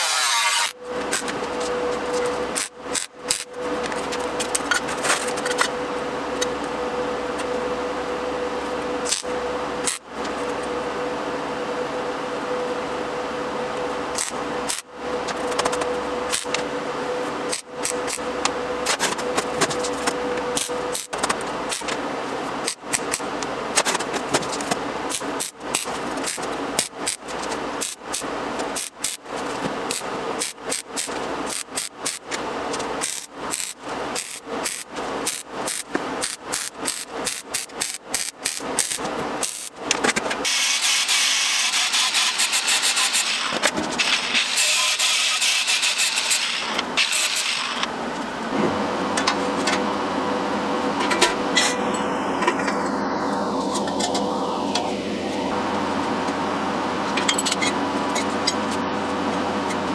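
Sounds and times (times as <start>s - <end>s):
angle grinder cutting steel: 0.0s - 1.3s, 40.4s - 47.9s
welder crackling: 0.0s - 4.7s, 9.0s - 10.6s, 14.1s - 47.9s.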